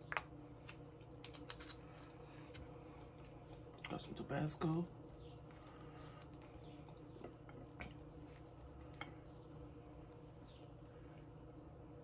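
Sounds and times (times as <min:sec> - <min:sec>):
wet mouth clicks eating: 0:00.0 - 0:01.9
low room hum: 0:00.0 - 0:12.0.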